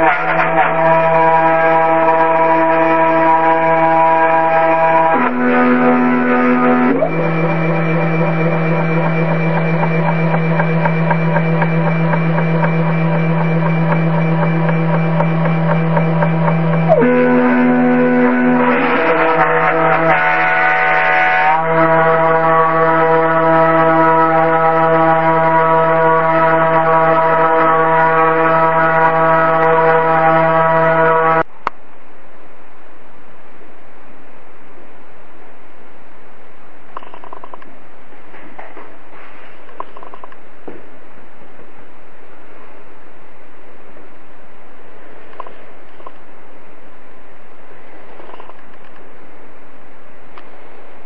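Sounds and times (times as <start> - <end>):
router spindle humming: 0.4 - 31.4
regular ticking: 5.0 - 25.6.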